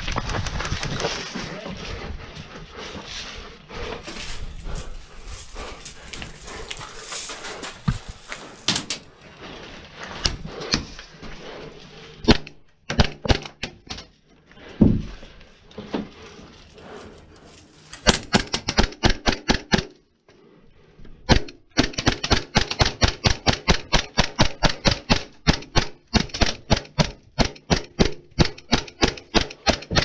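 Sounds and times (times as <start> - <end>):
footsteps on gravel: 3.8 - 8.9
sharp knocks and clicks: 12.3 - 14.1, 18.0 - 20.0, 21.3 - 30.0.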